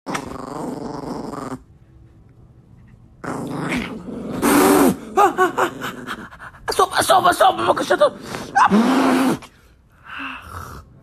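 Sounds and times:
dog play-growling: 0.1s - 1.8s, 2.9s - 6.4s.

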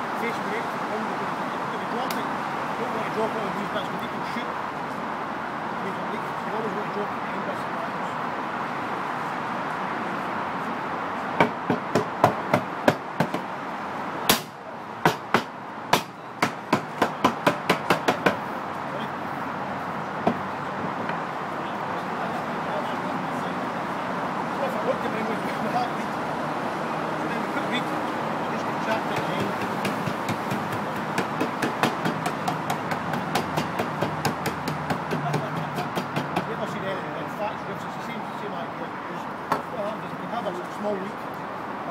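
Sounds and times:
hammer knocking on wooden barrel: 11.4s - 13.4s, 14.3s - 18.4s, 29.1s - 36.5s.

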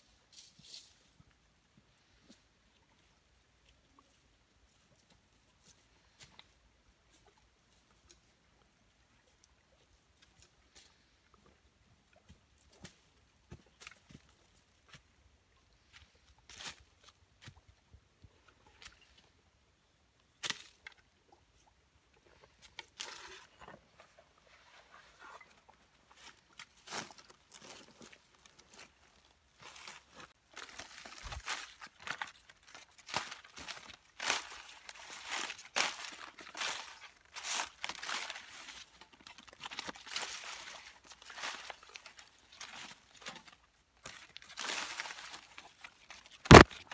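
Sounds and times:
footsteps on dry leaves: 29.6s - 46.7s
dry leaves crackling: 29.6s - 46.9s.

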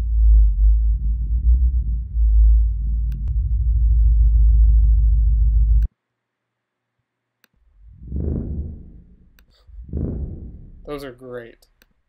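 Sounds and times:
deep pulsing subwoofer tone: 0.0s - 5.9s, 7.8s - 11.1s
low swelling tone: 0.0s - 5.9s.

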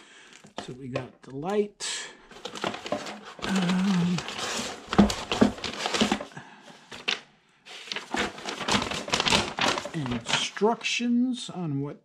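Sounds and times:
packaging rustling and crinkling: 2.3s - 10.6s.

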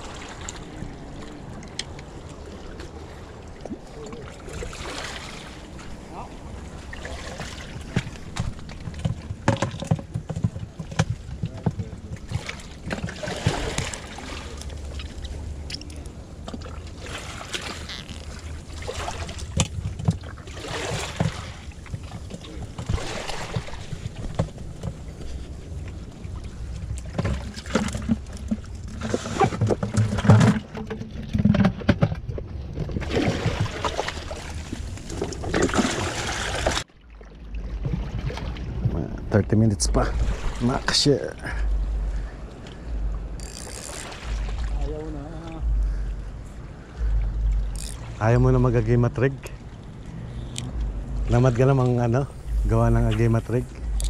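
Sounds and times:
wind rumble on microphone: 37.5s - 54.0s.

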